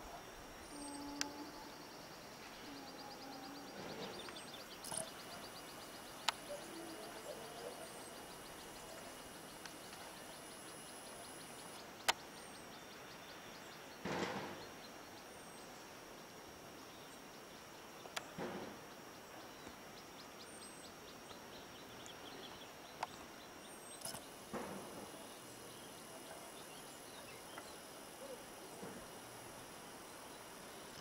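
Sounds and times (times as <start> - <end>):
distant bird chirps: 0.0 - 15.2.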